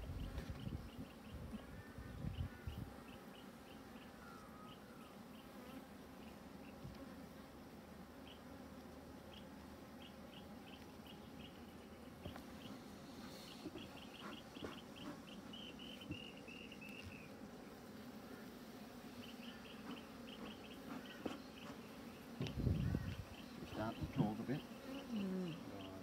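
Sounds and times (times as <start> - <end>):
honey bees buzzing: 0.0 - 26.0.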